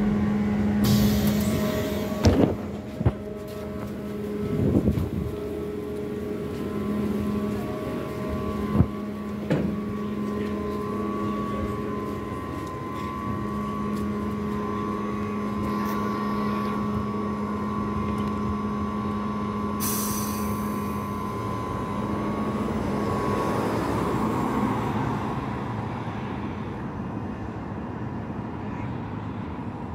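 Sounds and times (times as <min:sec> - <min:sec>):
trolleybus electrical hum: 0:00.0 - 0:29.9
trolleybus pulling away: 0:00.0 - 0:29.9
pneumatic door air hiss: 0:00.8 - 0:02.6, 0:19.8 - 0:20.8.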